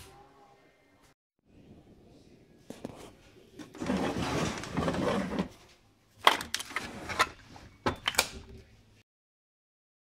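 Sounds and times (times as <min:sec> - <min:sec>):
drawer sliding: 0:03.6 - 0:05.6, 0:06.2 - 0:08.2.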